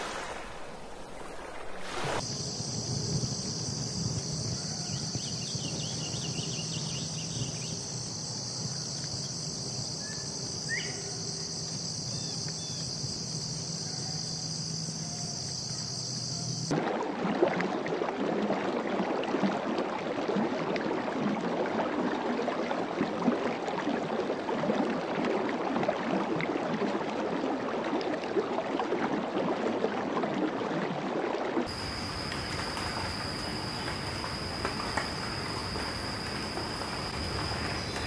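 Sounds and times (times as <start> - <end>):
water splashing and churning: 0.0 - 2.2, 16.7 - 38.0
high-pitched insect chorus: 1.9 - 16.7, 31.7 - 38.0.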